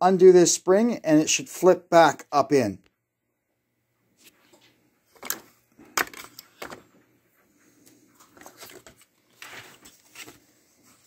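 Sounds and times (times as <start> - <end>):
plastic scraping and rattling: 8.2 - 10.4.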